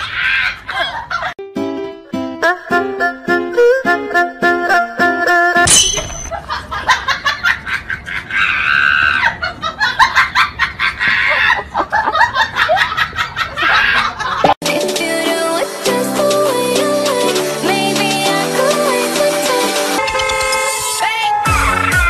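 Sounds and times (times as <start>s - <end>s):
people laughing: 0.1s - 1.4s, 6.3s - 14.6s
plucked background music: 1.4s - 6.2s, 14.6s - 22.0s.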